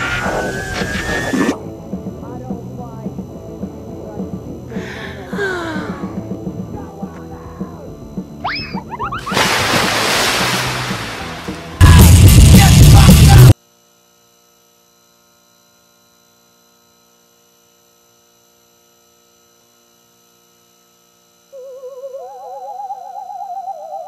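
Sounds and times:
loud distorted scream: 0.0 - 1.6
warbling theremin-like tones: 0.0 - 1.6, 21.6 - 24.0
faint steady hum: 0.0 - 24.0.

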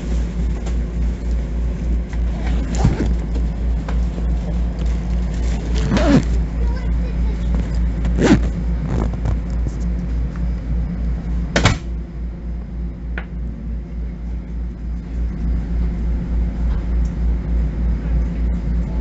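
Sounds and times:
low pulsing railcar hum: 0.0 - 19.0.

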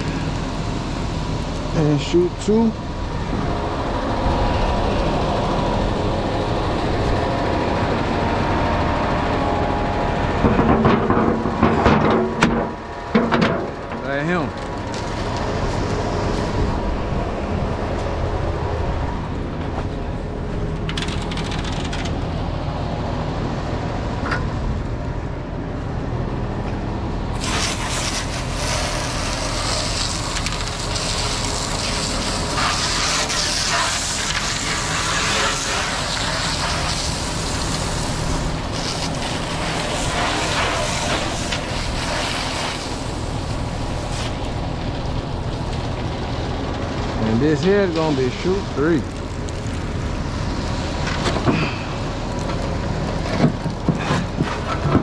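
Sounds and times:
diesel engine running: 0.0 - 55.0
water hose spraying: 27.3 - 51.0.

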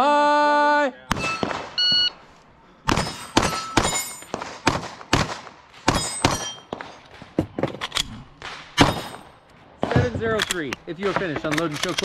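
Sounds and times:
pistol shots: 1.1 - 1.8, 2.9 - 7.3, 8.0 - 12.0
steel plate clanging: 2.9 - 4.4, 5.9 - 7.1, 8.8 - 9.4.

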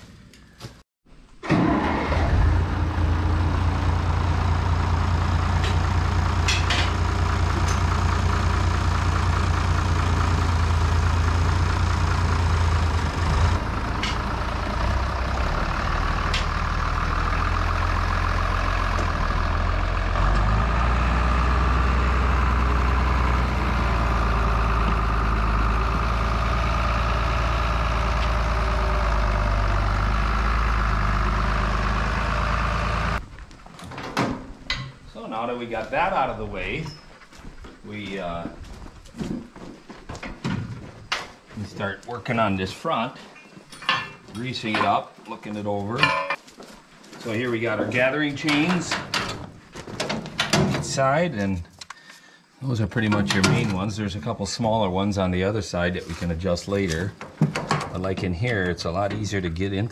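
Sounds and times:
tractor engine running: 1.4 - 42.8, 52.8 - 59.9.

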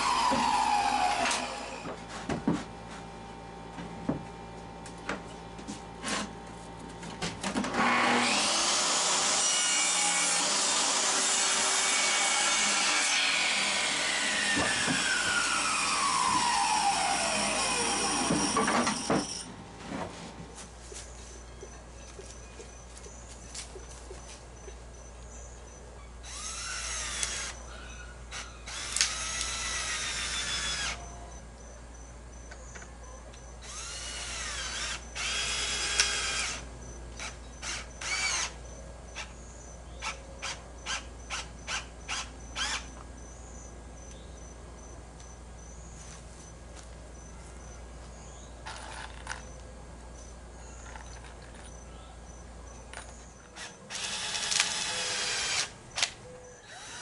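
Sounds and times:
power drill running in bursts: 7.8 - 19.4, 26.2 - 27.6, 28.3 - 31.0, 33.6 - 36.6, 37.2 - 38.6, 53.6 - 56.1, 56.7 - 57.0.

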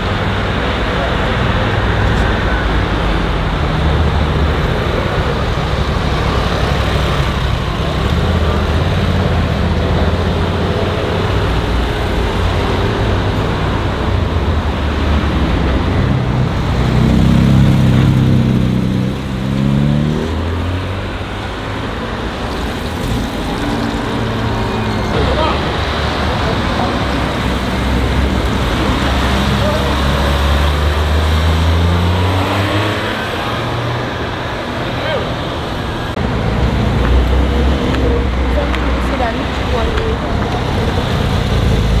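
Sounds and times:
car engine revving: 0.0 - 42.0
car engines in traffic: 0.0 - 42.0.

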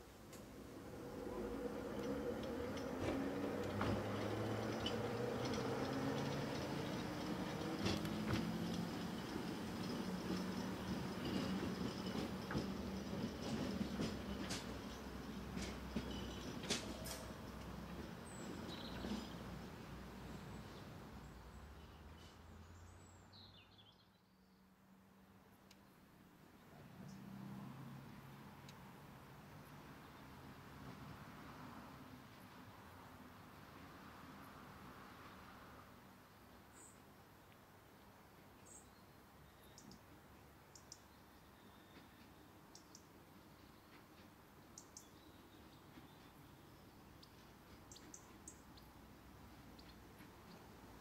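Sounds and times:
wheels clicking on track: 0.2 - 19.6
tram motor hum: 0.3 - 20.0
bird chirping: 44.6 - 49.0.

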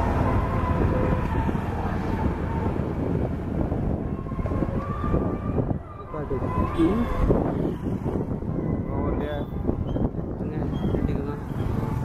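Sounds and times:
wind rumbling on microphone: 0.0 - 12.0
motorcycle engine running: 11.3 - 12.0.

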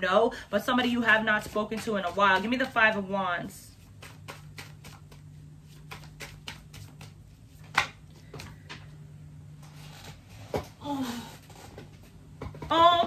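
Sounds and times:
low steady hum: 0.0 - 13.0
cards being shuffled: 3.8 - 8.6.

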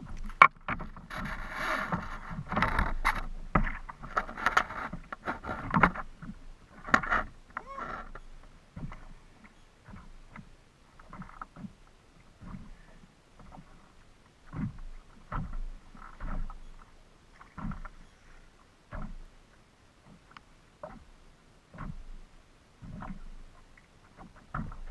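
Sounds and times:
water slapping against plastic hull: 0.0 - 12.8, 14.4 - 18.0, 18.9 - 19.3, 21.7 - 22.2, 22.8 - 24.9.

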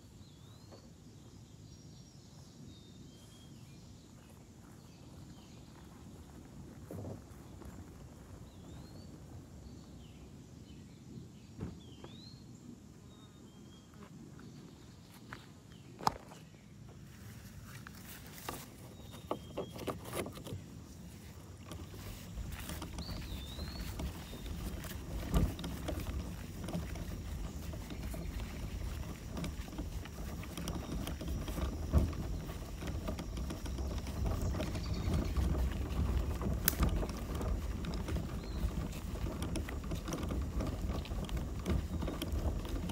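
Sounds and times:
paddle strokes in water: 17.1 - 42.9.

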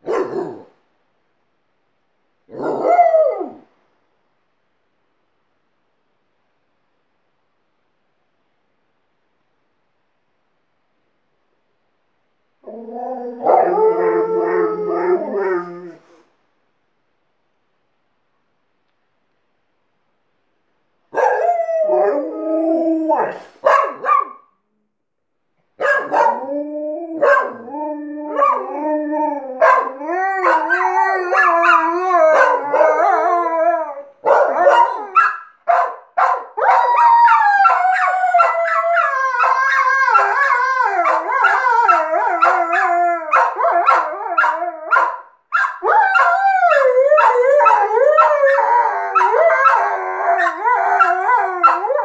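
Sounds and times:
dogs howling together: 12.6 - 16.0, 21.2 - 23.4, 26.0 - 35.2, 36.6 - 45.1, 45.8 - 52.0.

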